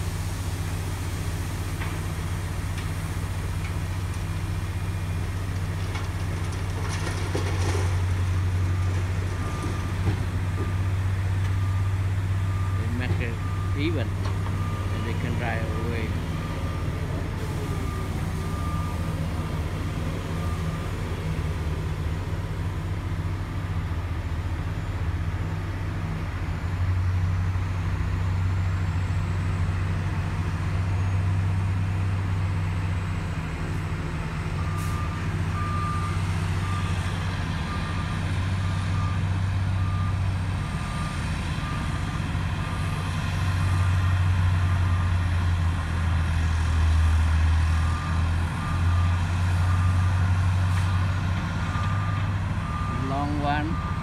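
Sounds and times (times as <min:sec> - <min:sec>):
heavy diesel machinery running: 0:00.0 - 0:54.0
backup alarm beeping: 0:51.8 - 0:54.0.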